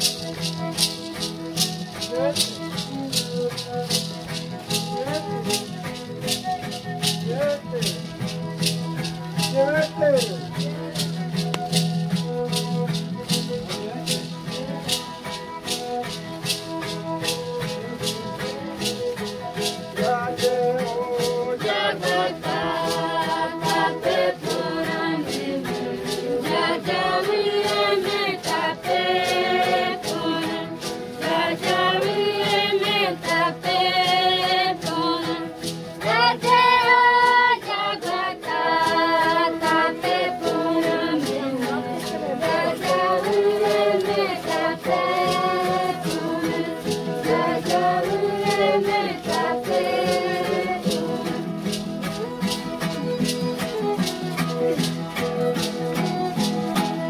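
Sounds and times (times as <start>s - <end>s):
rattles shaken in fast beat: 0.0s - 57.0s
group singing a chant: 20.1s - 51.9s.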